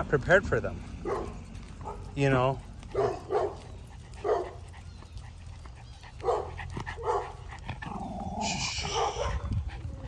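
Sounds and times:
dog barking: 1.0s - 2.2s, 2.9s - 4.6s, 6.2s - 7.5s, 8.7s - 9.6s
dog making drawn-out sound: 7.8s - 9.9s.

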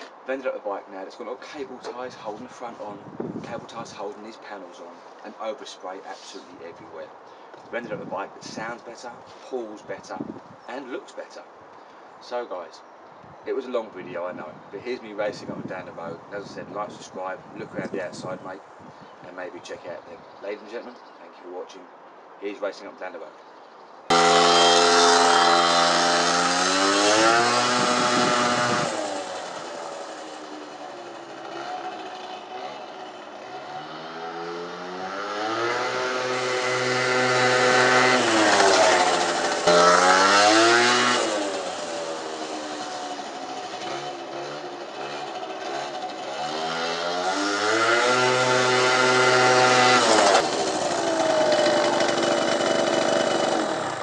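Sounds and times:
scooter engine at high revs: 24.1s - 54.0s.

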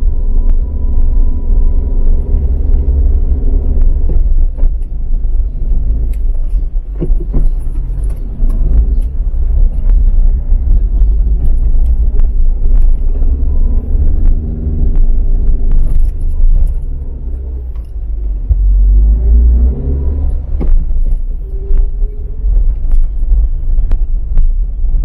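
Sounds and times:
car interior low rumble: 0.0s - 25.0s.

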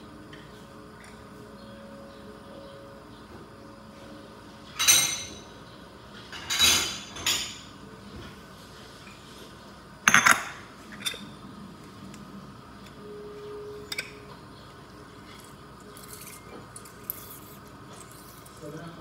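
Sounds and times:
utensils and dishes clattering: 4.6s - 5.6s, 6.2s - 7.8s, 10.0s - 11.4s, 13.8s - 14.4s, 15.2s - 19.0s.

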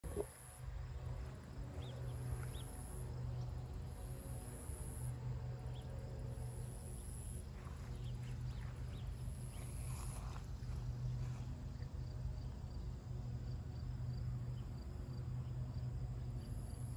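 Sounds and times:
insects trilling: 0.0s - 12.1s
steady low rumble: 0.0s - 16.9s.

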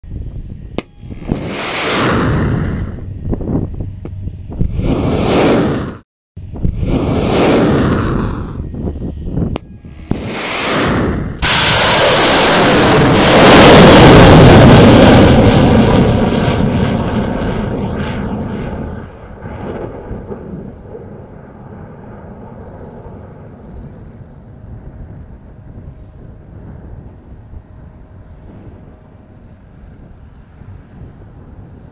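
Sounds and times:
faint steady rushing: 0.4s - 16.5s
rocket motor bursts: 0.6s - 16.3s
loud missile launch roar: 0.8s - 3.6s, 4.5s - 25.4s.

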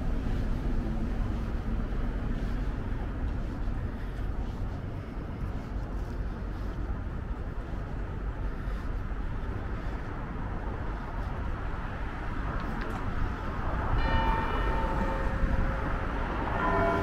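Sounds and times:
traffic rumble: 0.0s - 17.0s.

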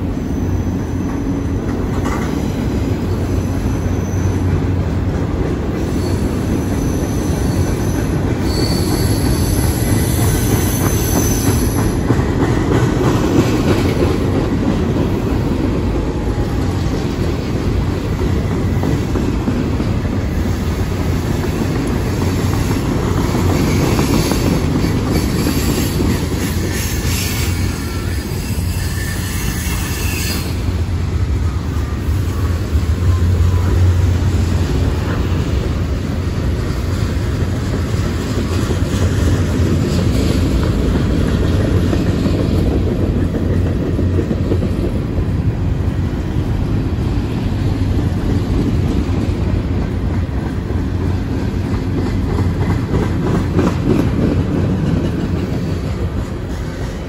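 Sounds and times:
freight cars rumbling on rails: 0.0s - 57.0s
high-pitched wheel squeal: 3.4s - 4.5s, 5.8s - 12.0s, 25.4s - 30.7s.

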